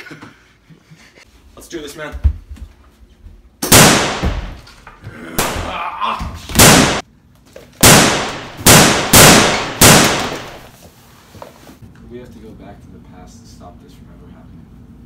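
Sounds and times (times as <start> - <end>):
shotgun blasts: 3.6 - 4.6, 6.6 - 7.0, 7.8 - 10.7.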